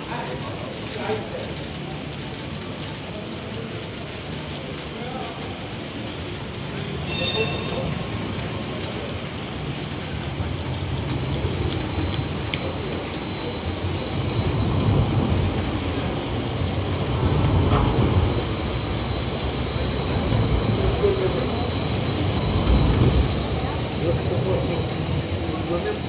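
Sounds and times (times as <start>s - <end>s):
steady rain: 0.0s - 26.0s
tram rumbling past: 5.8s - 26.0s.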